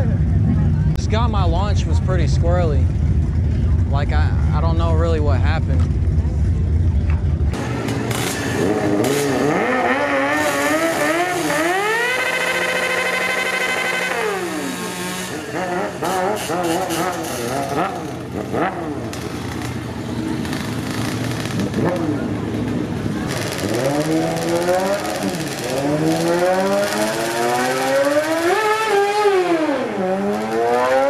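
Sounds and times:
motorcycle engines revving: 0.0s - 31.0s.

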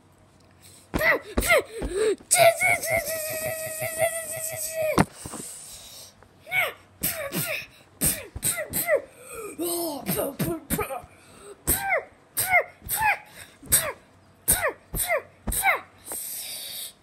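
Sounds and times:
child making mouth fight noises: 1.0s - 5.0s.

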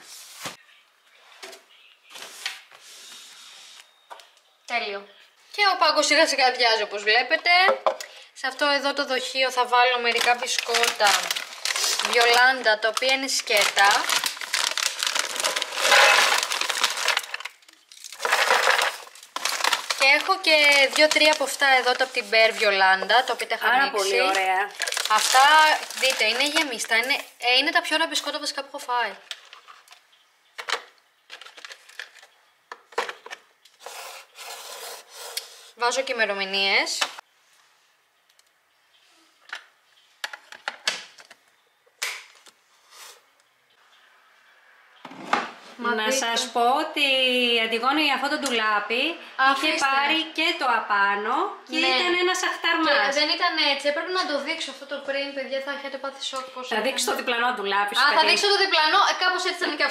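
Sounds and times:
biscuits clattering into plastic canister: 10.1s - 22.1s.

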